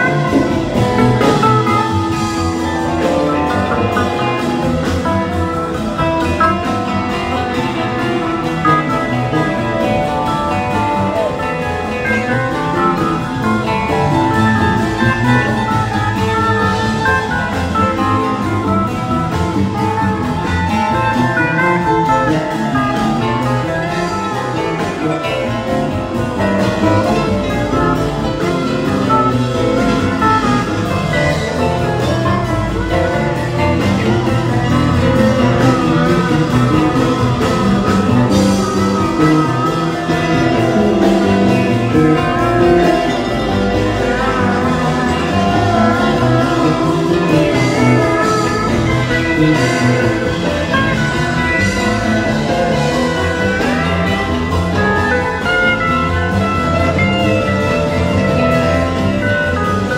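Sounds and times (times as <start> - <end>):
guitars: 0.0 - 59.9
keyboard: 0.0 - 59.9
live band instrumental: 0.0 - 59.9.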